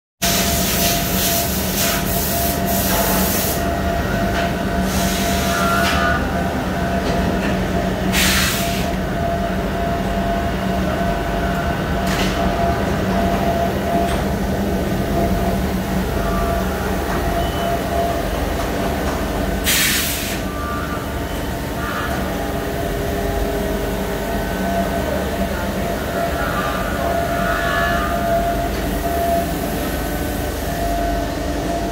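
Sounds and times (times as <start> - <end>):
machine hum with held tones: 1.4 - 19.7, 20.3 - 31.9
machine hissing: 19.6 - 20.5.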